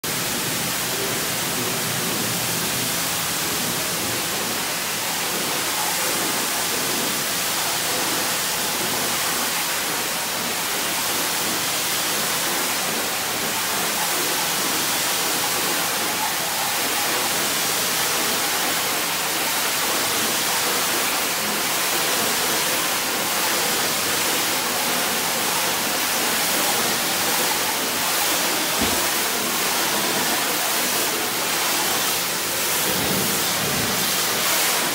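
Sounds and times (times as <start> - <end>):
pressure washer spray hissing: 16.8 - 34.9.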